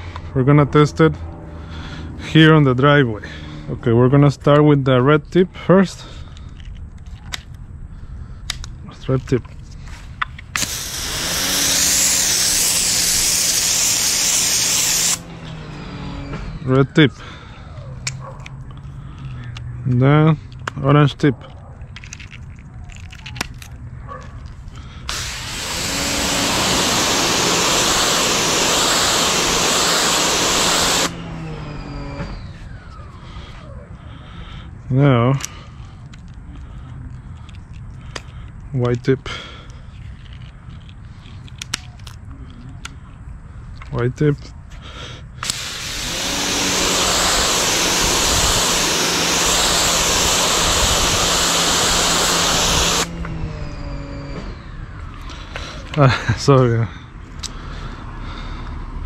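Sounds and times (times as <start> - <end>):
pressure washer water jet hiss: 10.6 - 15.3, 25.1 - 31.4, 45.4 - 53.2
pump motor hum: 10.6 - 17.7, 25.1 - 33.0, 45.4 - 55.8.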